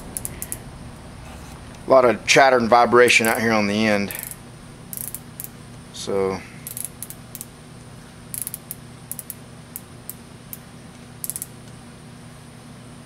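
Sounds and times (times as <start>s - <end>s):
micrometer ratchet clicking: 0.0s - 0.6s, 3.1s - 3.5s, 4.1s - 5.6s, 6.6s - 7.5s, 8.3s - 11.6s
steady low hum: 0.0s - 13.0s.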